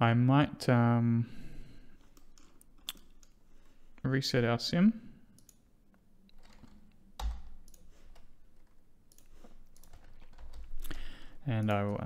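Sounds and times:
computer mouse clicks: 2.1 - 3.4, 5.3 - 5.6, 6.3 - 11.0.

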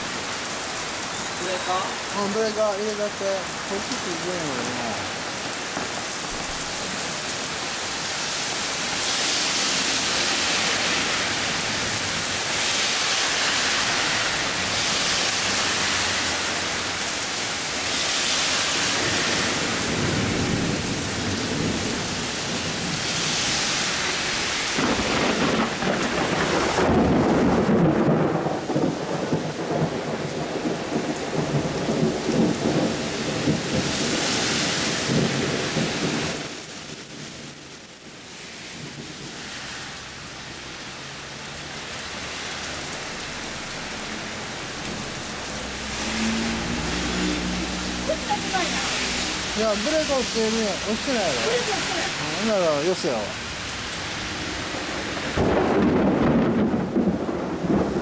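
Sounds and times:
heavy rain: 0.0 - 58.0
thunder rumbling: 18.8 - 23.0, 24.3 - 36.4, 53.3 - 58.0.

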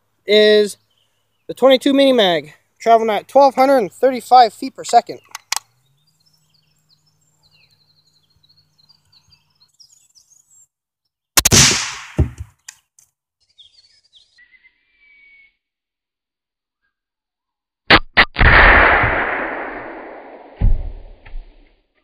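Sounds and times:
birds chirping faintly: 0.1 - 11.3, 12.5 - 15.7
rifle shot: 11.4 - 12.4, 17.9 - 21.6.

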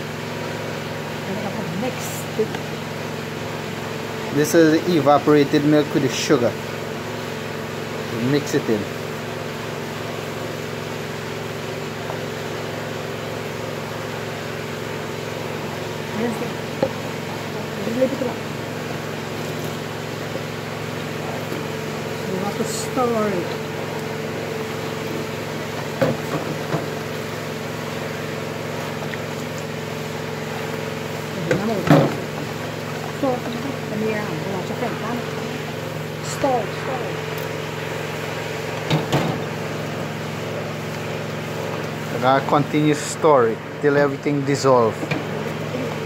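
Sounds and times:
machine hum over hiss: 0.0 - 46.0
person speaking: 36.2 - 37.3.

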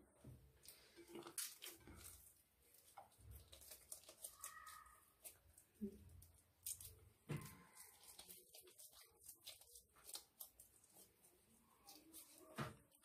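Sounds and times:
soft taps and squelches of dough: 0.1 - 13.0.

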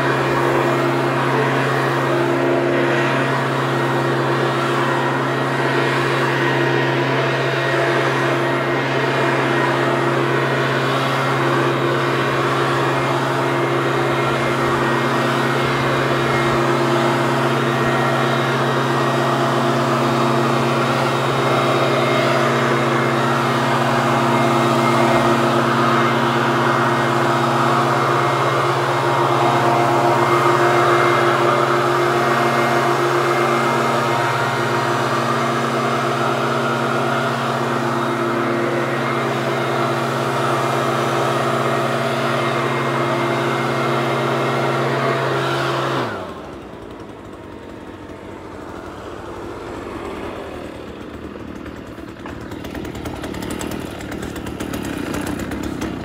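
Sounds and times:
leaf blower engine: 0.0 - 56.0.

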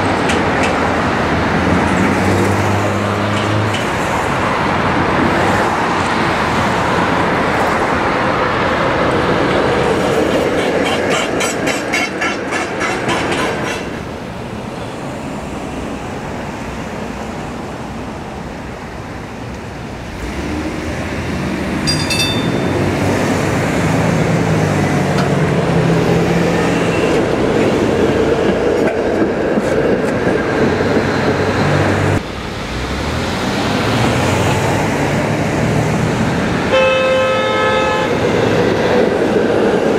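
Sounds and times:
streetcar motors humming: 0.0 - 39.9
streetcar wheels rolling on rails: 0.0 - 39.9
traffic: 0.0 - 39.9
short high ring: 21.8 - 23.0.

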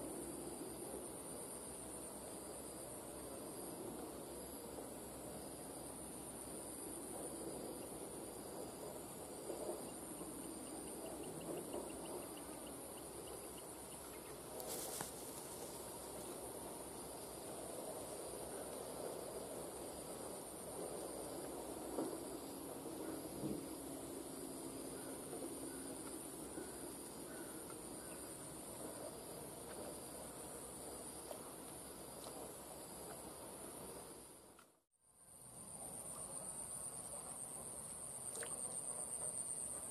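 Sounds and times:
soft open-air hiss: 0.0 - 25.2
high-pitched insect chorus: 0.0 - 34.4.

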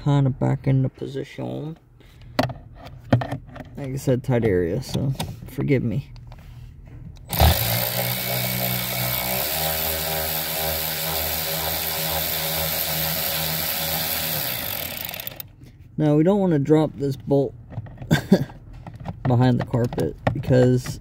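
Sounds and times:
battery power tool spinning: 7.3 - 15.5.

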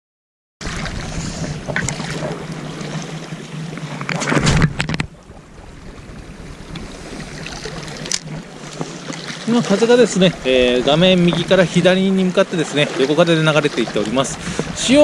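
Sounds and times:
wind on microphone: 0.6 - 3.0, 10.0 - 12.0, 14.0 - 15.0
water washing against rocks: 0.6 - 15.0.

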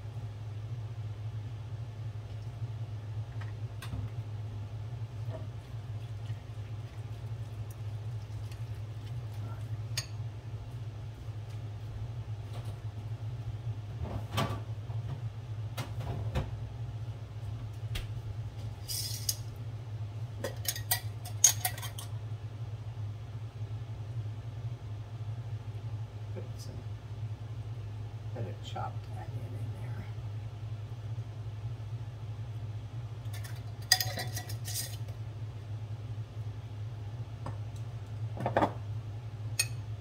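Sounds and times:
steady low hum: 0.0 - 40.0
kitchen items clinking and knocking: 20.4 - 22.1, 33.3 - 35.0.

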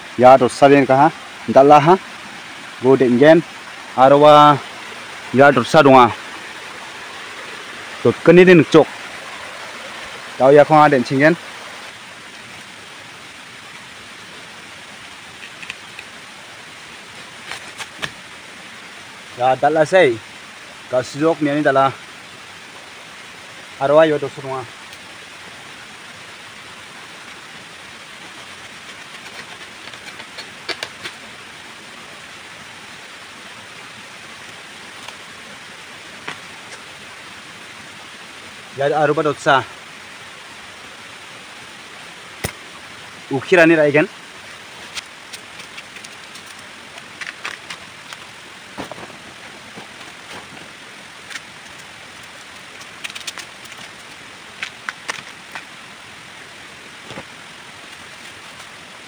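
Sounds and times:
running water rushing: 0.0 - 59.0
steady hiss: 0.0 - 59.0
bamboo sheaths snapping and tearing: 17.4 - 18.2, 28.6 - 31.2, 42.4 - 42.6, 44.8 - 49.0, 51.2 - 55.7.

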